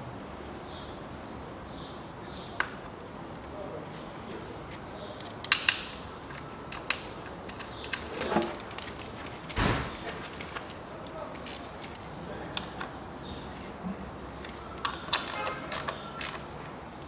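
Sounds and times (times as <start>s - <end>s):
tools and coils clicking: 5.2s - 9.2s, 14.4s - 16.5s.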